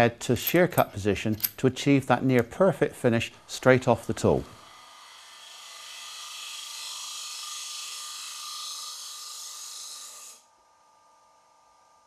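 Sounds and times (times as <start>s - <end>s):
wood lathe running: 4.1s - 10.3s.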